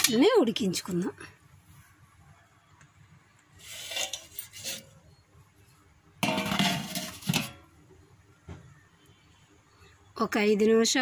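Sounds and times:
steel plate clinking in pot: 3.8 - 4.8, 6.2 - 7.6.

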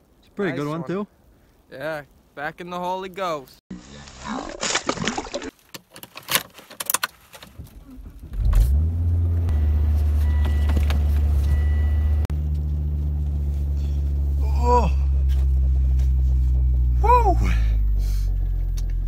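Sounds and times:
clicks and handling noises: 5.5 - 7.8
car engine starting: 7.4 - 19.0
car engine idling: 7.5 - 19.0.

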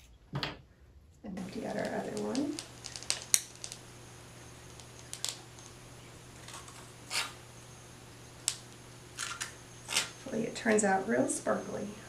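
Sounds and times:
low steady hum: 0.4 - 12.0
small clicks: 1.6 - 3.8, 4.6 - 5.8, 8.4 - 10.2.

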